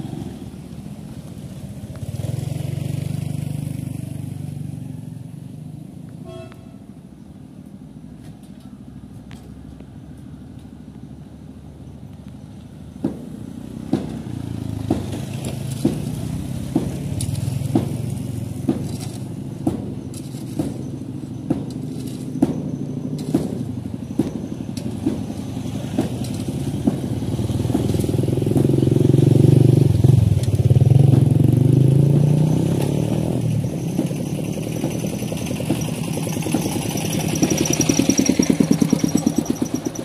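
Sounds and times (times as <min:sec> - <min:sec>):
small motorcycles riding: 0:00.0 - 0:06.2, 0:10.4 - 0:40.0
tool striking concrete rubble: 0:13.0 - 0:28.8, 0:31.0 - 0:40.0.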